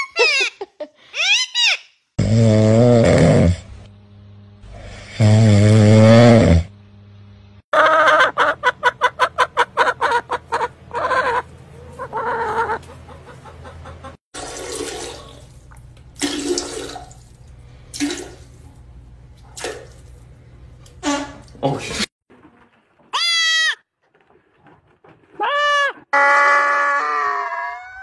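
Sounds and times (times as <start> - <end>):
hen clucking: 7.7 - 14.2
hen drawn-out calls: 7.8 - 13.6.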